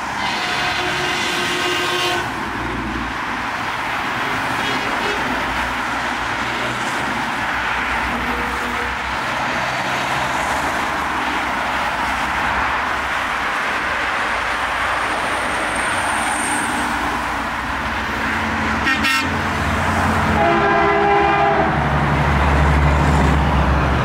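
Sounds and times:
heavy highway traffic roar: 0.0s - 24.0s
truck air horn: 0.1s - 2.4s, 4.6s - 5.4s, 8.1s - 9.1s, 18.8s - 19.4s, 20.2s - 21.8s.

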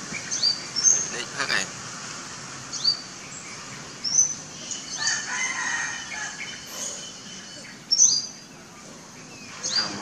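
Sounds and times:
small birds chirping: 0.0s - 10.0s
rooster crowing: 5.0s - 6.7s.

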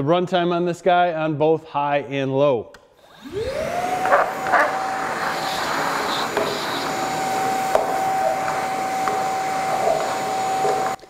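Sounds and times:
air rushing through hose: 3.0s - 11.0s
wet dry vacuum motor whine: 3.0s - 11.0s.

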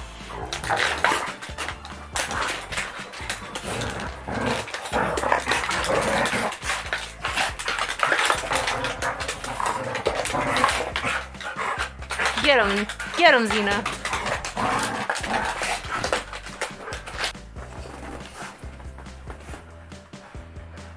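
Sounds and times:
dogs play-fighting: 0.0s - 20.9s.

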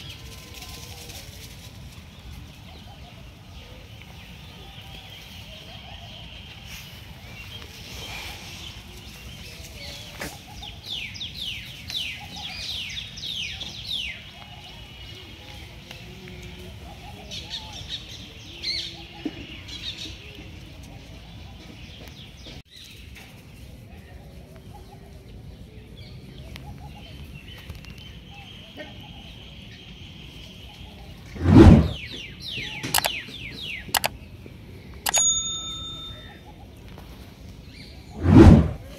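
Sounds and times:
birds chirping: 25.9s - 38.9s.

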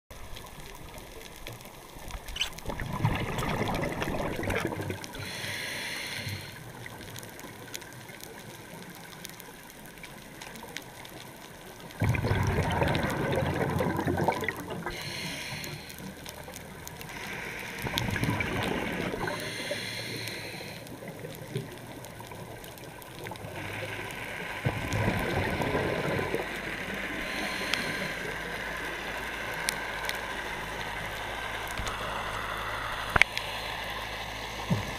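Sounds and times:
gurgling exhaled bubbles: 2.1s - 5.4s, 12.0s - 15.2s, 17.0s - 19.6s, 23.2s - 28.2s
regulator air hiss: 5.2s - 6.7s, 14.8s - 16.2s, 17.1s - 18.0s, 19.1s - 21.0s, 27.0s - 29.6s.

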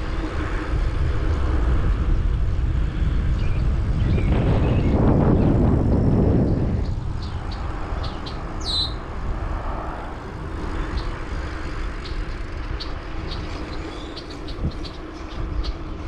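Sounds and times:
wind and road rumble: 0.0s - 16.0s
birds chirping: 3.3s - 16.0s
bird downward-sweeping call: 8.0s - 9.0s.

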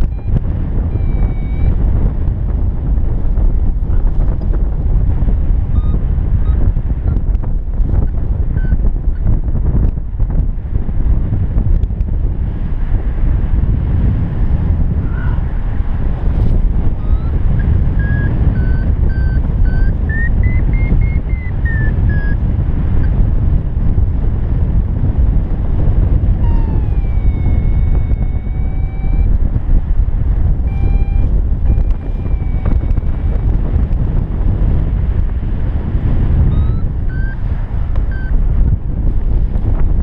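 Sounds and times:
variometer beeping: 0.0s - 2.4s, 5.7s - 9.3s, 16.8s - 23.2s, 26.3s - 29.6s, 30.6s - 33.9s, 36.4s - 38.8s
strong wind buffeting microphone: 0.0s - 40.0s.

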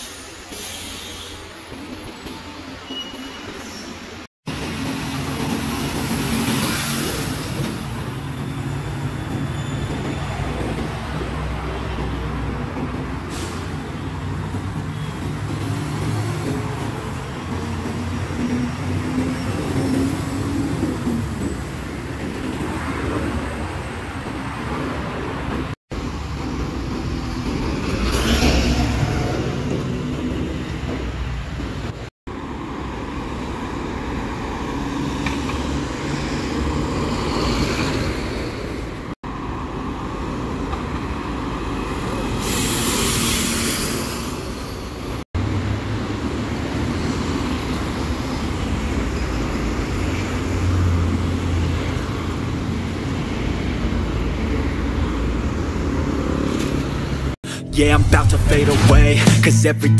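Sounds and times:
hiss: 0.0s - 1.5s, 42.1s - 44.9s
tyres on road: 0.0s - 59.9s
bus engines running: 4.1s - 57.8s.

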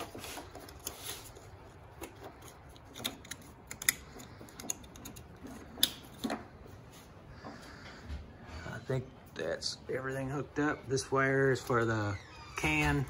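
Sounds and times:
wires rustling: 0.0s - 8.4s.

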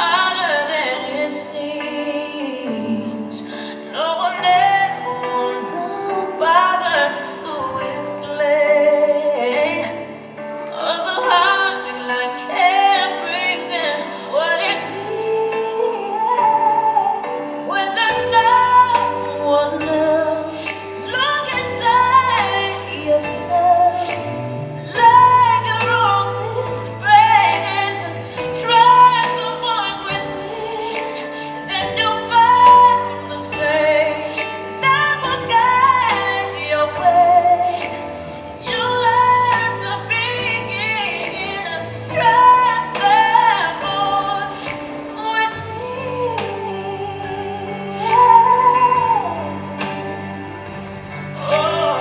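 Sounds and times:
woman singing with vibrato: 0.0s - 52.0s
held accompaniment: 14.7s - 52.0s.

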